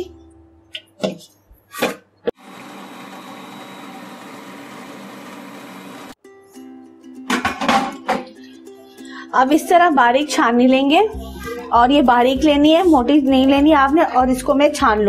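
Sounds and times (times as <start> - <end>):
food processor blending: 2.4 - 6.2.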